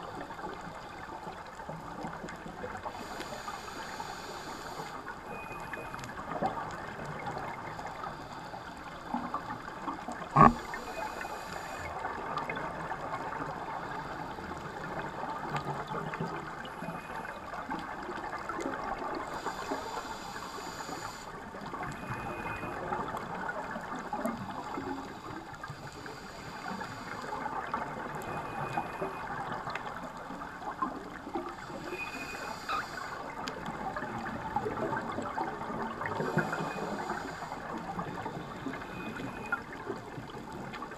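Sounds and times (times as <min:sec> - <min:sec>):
underwater crackling hiss: 0:00.0 - 0:40.9
scuba regulator breaths: 0:02.8 - 0:06.0, 0:07.6 - 0:09.5, 0:10.3 - 0:12.0, 0:19.2 - 0:21.4, 0:24.4 - 0:27.6, 0:31.5 - 0:33.4, 0:36.1 - 0:39.7.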